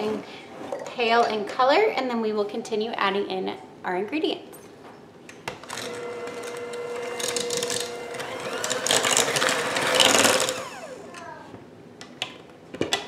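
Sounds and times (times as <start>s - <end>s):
electric hand mixer whine: 5.7s - 11.2s.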